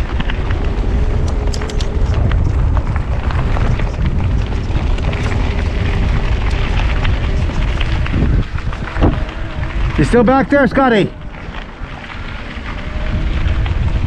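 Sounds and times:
bike clicks and rattles: 0.0s - 14.0s
bike tyres rumbling over dirt: 0.0s - 14.0s
wind buffeting microphone: 0.0s - 14.0s.

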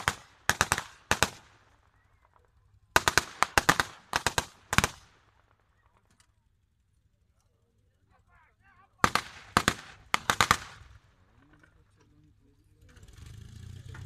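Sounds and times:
automatic weapon bursts: 0.0s - 1.5s, 2.9s - 5.1s, 9.0s - 11.0s.

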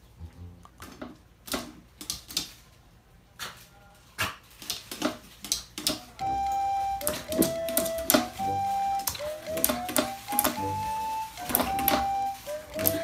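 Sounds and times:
background music: 0.0s - 0.9s, 6.2s - 13.0s.

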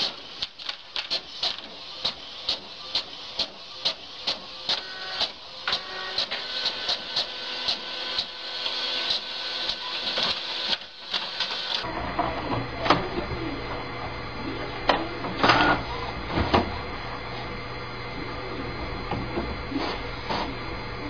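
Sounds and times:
printer sharp clacks: 0.0s - 11.8s
printer feeding paper clicks: 0.0s - 11.9s
printer hiss: 0.0s - 11.9s
printer low hum: 0.0s - 21.0s.

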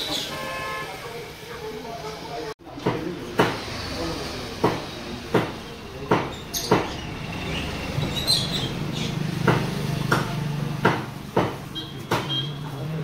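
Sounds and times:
sharp knocks: 2.8s - 3.7s, 4.6s - 7.2s, 9.3s - 12.4s.

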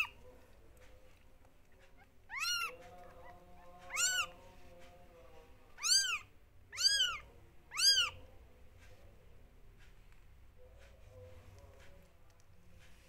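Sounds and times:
kittens mewing: 2.0s - 4.4s, 5.8s - 8.2s.

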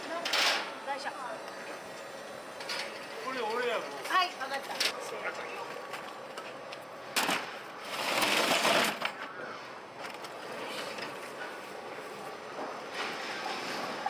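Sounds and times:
plastic crate scraping rattle: 7.8s - 9.0s.

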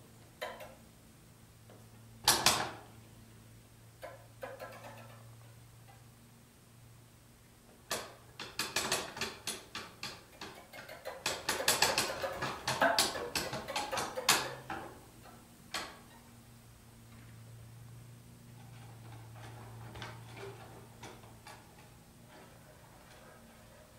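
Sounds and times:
faint low hum: 10.2s - 23.9s.

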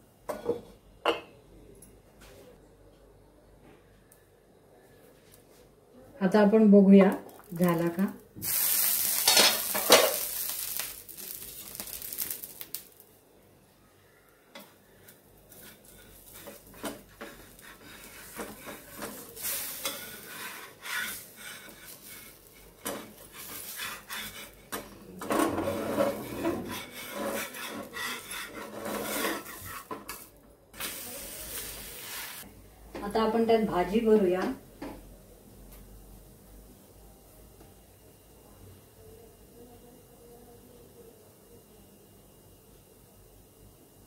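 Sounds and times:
batter sizzling on hot griddle: 7.3s - 13.2s, 14.9s - 32.5s
spatula scraping iron griddle: 15.0s - 30.2s.

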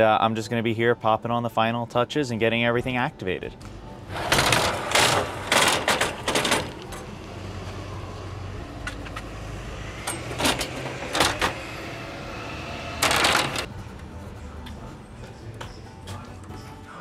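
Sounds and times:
ladder scraping against roof rack: 4.1s - 7.2s, 10.0s - 11.8s, 13.0s - 13.7s.

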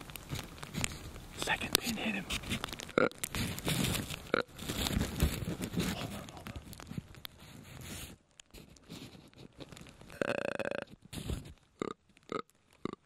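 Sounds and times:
clothing rustling and scraping: 0.0s - 10.1s, 11.0s - 11.6s.

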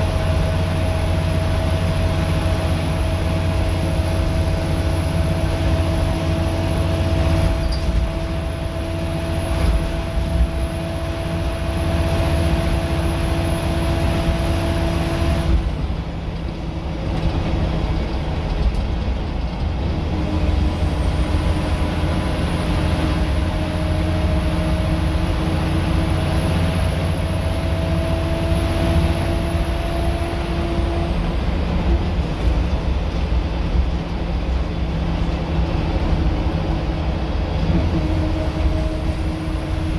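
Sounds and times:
bus engine drone: 0.0s - 39.9s
drivetrain whine: 0.0s - 39.9s.

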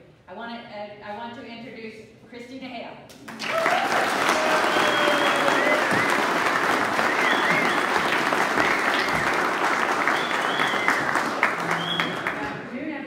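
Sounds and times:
audience applauding: 3.3s - 12.6s.

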